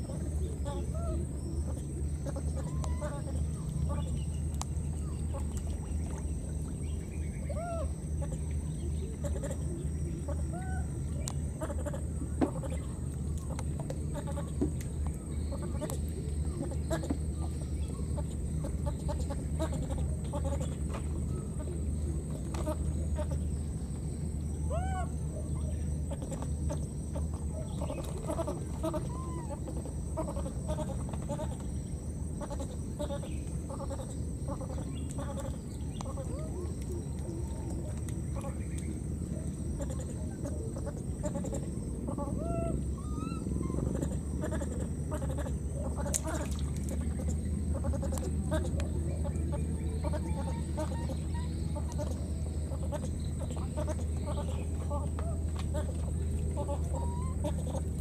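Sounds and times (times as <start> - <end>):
faint chirps: 0.0 - 58.0
steady low hum: 0.0 - 58.0
steady low rumble: 0.0 - 58.0
baby monkey crying: 40.8 - 46.4.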